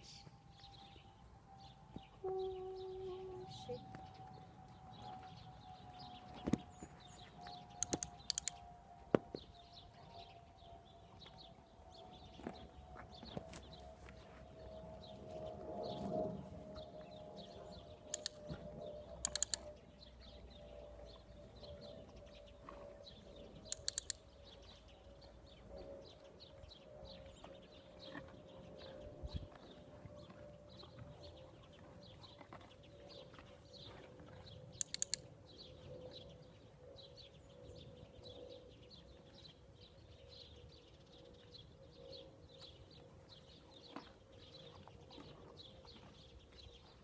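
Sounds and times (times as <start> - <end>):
steady tone sinking in pitch: 0.0 - 12.4
birds chirping: 0.0 - 13.9, 16.8 - 46.9
sharp clicks: 7.8 - 8.6, 18.1 - 18.6, 19.2 - 19.8, 23.6 - 24.4, 34.8 - 35.3.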